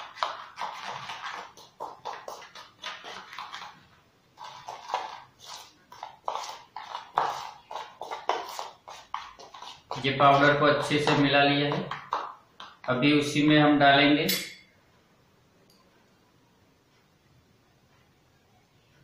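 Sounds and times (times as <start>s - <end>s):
spoon scraping a bowl: 4.4s - 11.2s.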